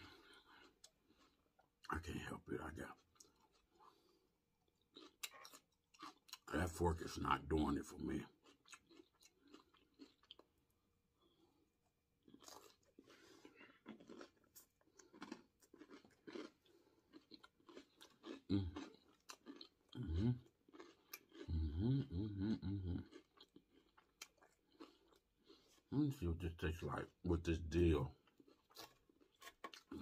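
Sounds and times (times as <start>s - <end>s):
chewing and crunching lettuce: 0.0s - 30.0s
person humming: 21.5s - 23.0s.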